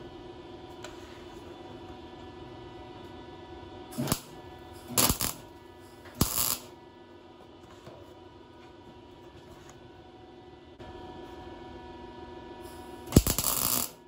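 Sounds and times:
steady hum: 0.0s - 14.0s
crackling welds: 3.9s - 6.7s, 12.6s - 14.0s.

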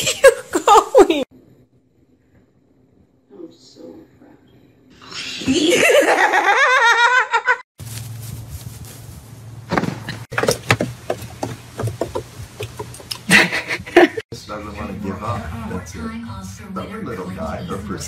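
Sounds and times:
light clicks and knocks: 10.4s - 13.2s.

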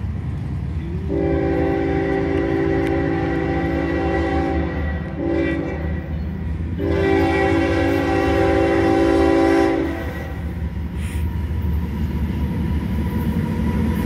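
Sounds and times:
diesel engine rumble: 0.0s - 14.0s
locomotive air horn blasts: 1.0s - 10.6s.

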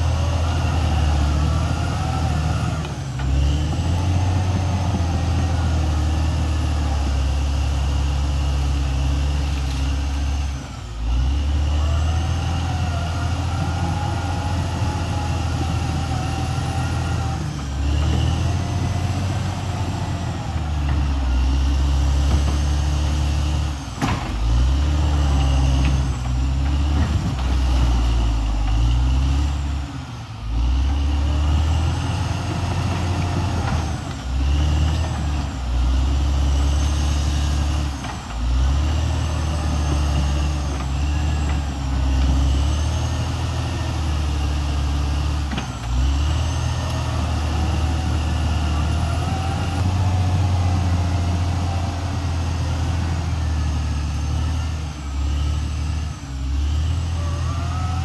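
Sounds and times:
bulldozer diesel engine under load: 0.0s - 58.0s
steel tracks squealing: 56.6s - 58.0s.

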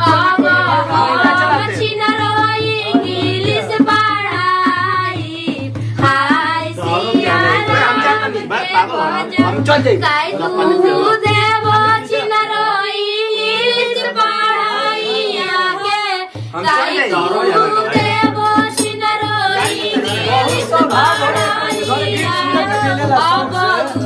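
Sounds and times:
low drum beat: 0.0s - 12.2s
women singing: 0.0s - 24.0s.

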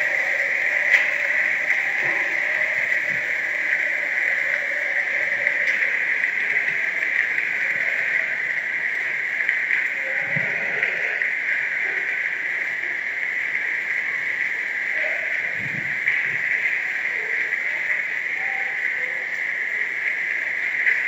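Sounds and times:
hail and rain on grass: 0.0s - 21.0s.

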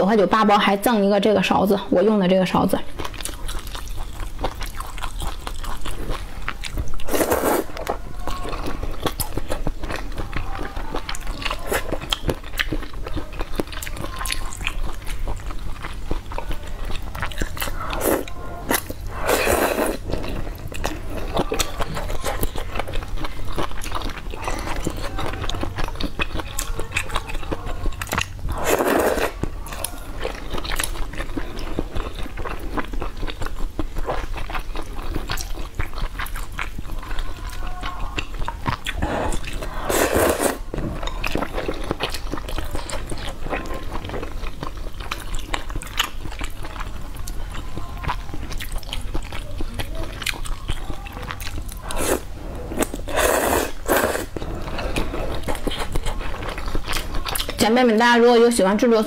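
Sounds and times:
chewing with mouth clicks: 2.8s - 57.8s
noodle slurps: 7.0s - 7.8s, 17.9s - 20.2s, 28.5s - 29.4s, 38.9s - 40.6s, 51.8s - 56.0s.

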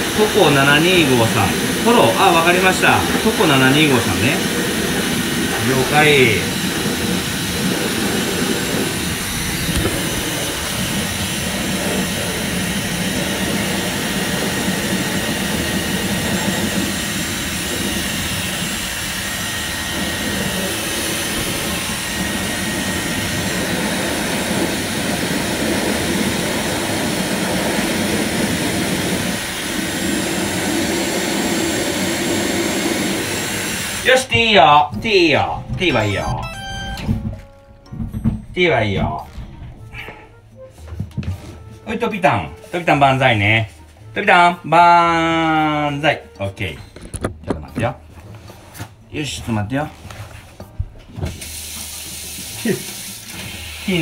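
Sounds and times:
hair dryer blowing: 0.0s - 37.4s, 51.2s - 54.0s.

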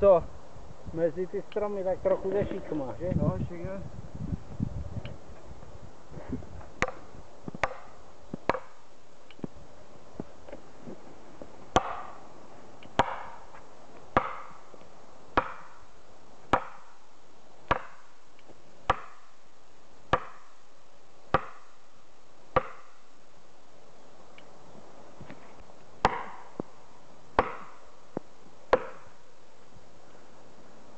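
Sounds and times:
axe driving wedges: 11.8s - 12.2s, 15.4s - 15.7s, 17.7s - 18.0s, 22.6s - 22.9s, 27.4s - 27.8s, 28.7s - 29.1s.

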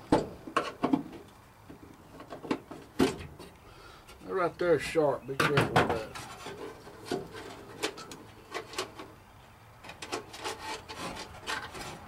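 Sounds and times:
rubbing and scraping: 5.5s - 9.2s, 9.8s - 12.0s.

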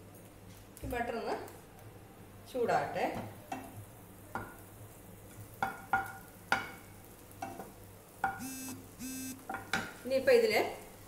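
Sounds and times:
wooden spatula knocking on a pan: 5.6s - 6.8s
brief buzzing tone: 8.4s - 9.4s.

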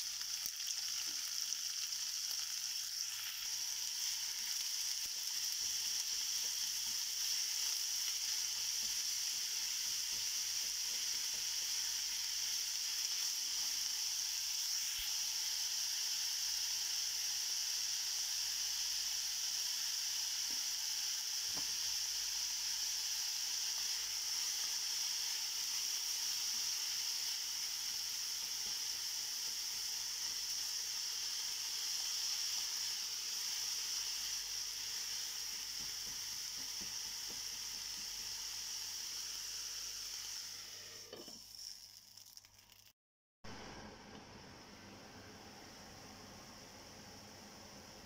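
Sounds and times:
onions sizzling in hot oil: 0.0s - 43.0s.

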